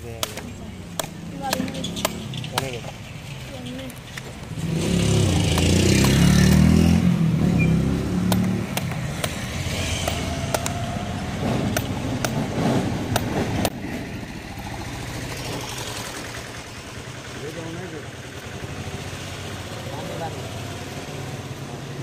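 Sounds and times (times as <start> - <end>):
vehicle engine running: 0.1 - 22.0
blade cutting fruit husk clicks: 8.2 - 9.4.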